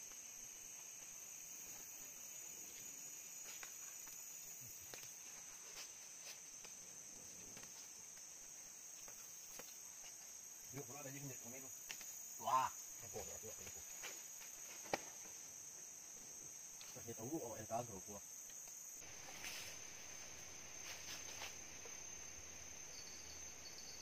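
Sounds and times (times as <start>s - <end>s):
insects trilling: 0.0s - 24.0s.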